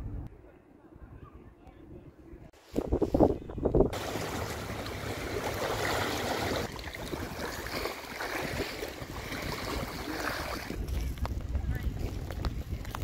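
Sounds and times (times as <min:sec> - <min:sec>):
lake water lapping at shore: 0:04.0 - 0:11.2.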